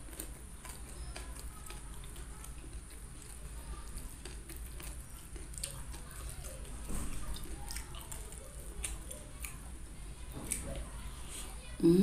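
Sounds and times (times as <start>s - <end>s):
chewing: 0.0s - 11.8s.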